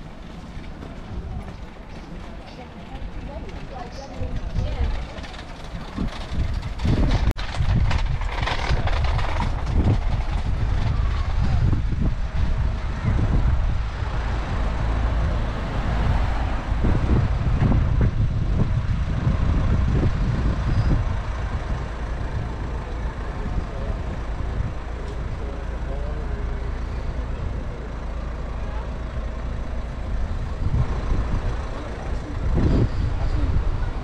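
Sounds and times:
bus engine rumble: 0:00.0 - 0:34.0
vehicles passing: 0:00.0 - 0:34.0.

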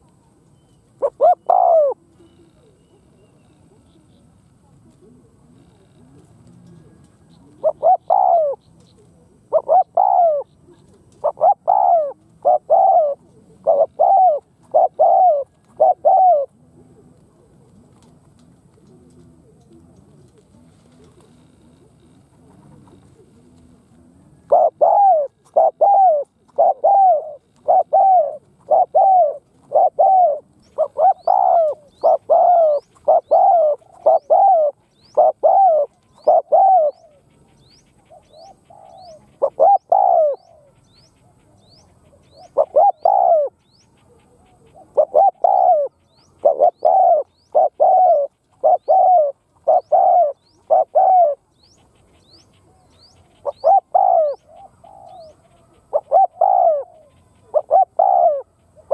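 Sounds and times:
dove cooing: 0:00.0 - 0:58.9
small bird chirping: 0:17.8 - 0:58.9.

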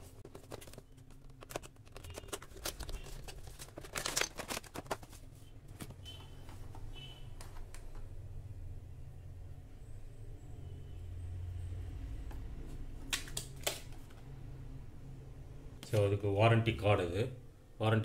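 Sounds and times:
plastic packaging clicks and rustles: 0:00.0 - 0:06.0.

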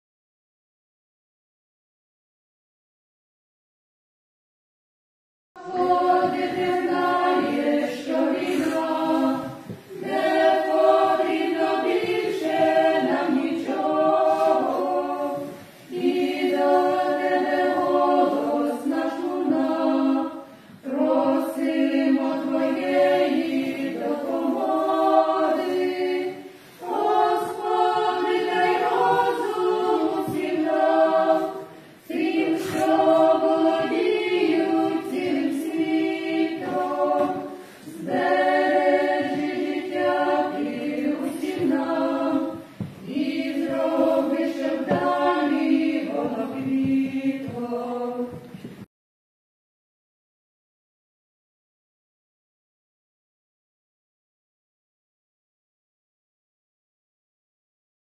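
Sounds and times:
women singing in harmony: 0:05.6 - 0:48.6.

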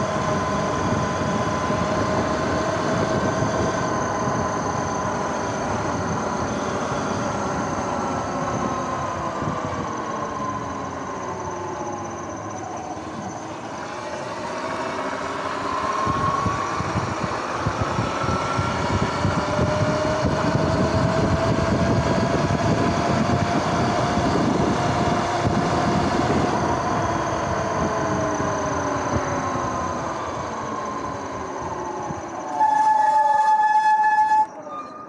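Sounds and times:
wind and road noise: 0:00.0 - 0:35.0
electric motor whining: 0:12.8 - 0:32.8.

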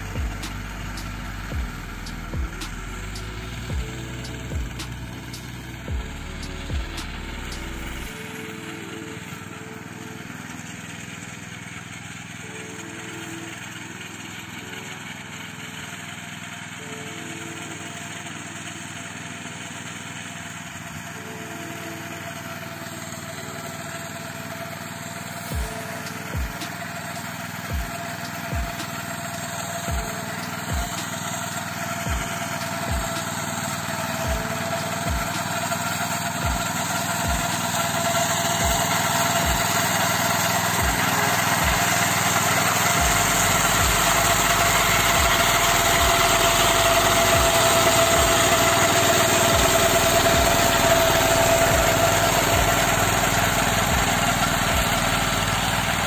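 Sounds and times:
tractor mower running: 0:00.0 - 0:56.0.

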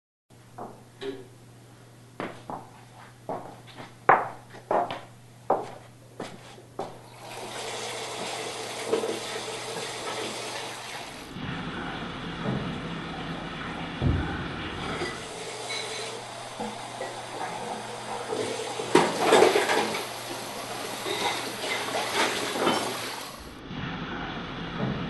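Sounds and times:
faucet water running into sink: 0:07.1 - 0:11.3, 0:15.1 - 0:23.4.

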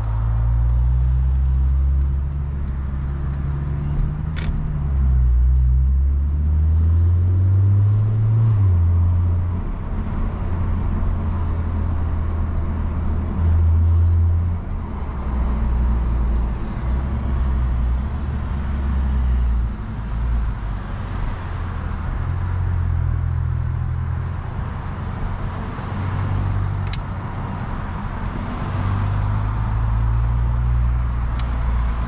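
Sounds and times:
car engine drone: 0:00.0 - 0:32.0
road noise: 0:00.0 - 0:32.0
sharp click: 0:26.8 - 0:31.7.

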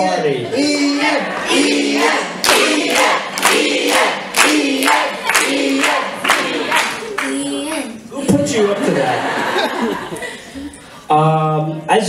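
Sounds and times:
group of voices singing: 0:00.2 - 0:07.4.

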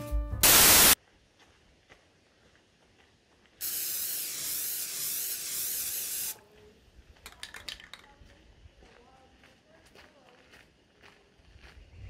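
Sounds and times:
loud steady hiss: 0:00.4 - 0:01.0, 0:03.6 - 0:06.4.

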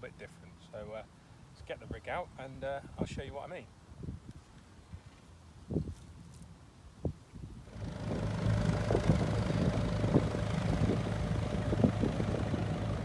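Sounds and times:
boat engine humming: 0:07.7 - 0:13.0.

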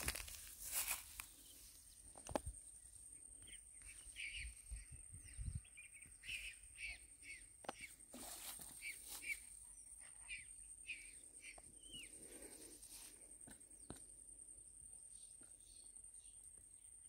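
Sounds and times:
birds chirping: 0:01.1 - 0:08.1, 0:08.8 - 0:12.8.

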